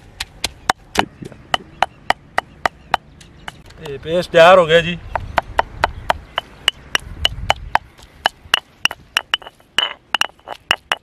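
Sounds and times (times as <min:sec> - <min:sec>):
pestle knocking in stone mortar: 0:00.2 - 0:03.6, 0:05.1 - 0:11.0.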